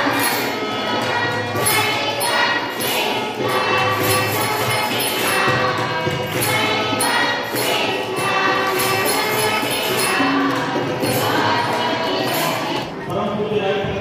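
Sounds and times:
group of voices singing: 0.0 - 14.0.

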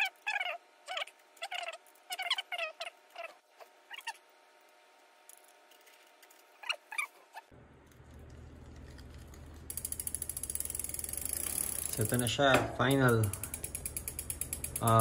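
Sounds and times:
bicycle chain running: 9.2 - 15.0
freewheel ticking rapidly: 9.7 - 15.0.

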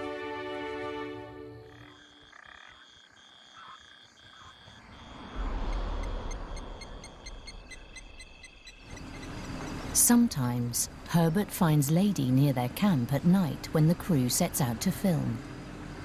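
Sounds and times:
frogs trilling: 1.5 - 11.4
low rumble: 4.8 - 11.3.

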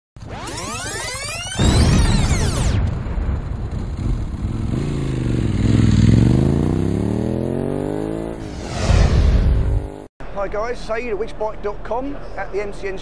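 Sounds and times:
motorcycle engine revving: 3.6 - 8.6, 9.5 - 10.1
sweeping whooshes: 8.3 - 10.1.

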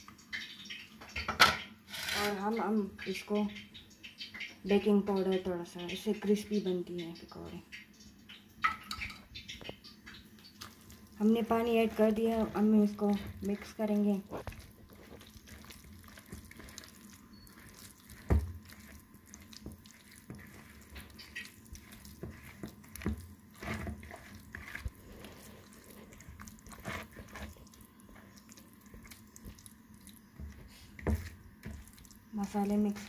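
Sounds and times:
hand squelching wet batter: 9.5 - 33.0.

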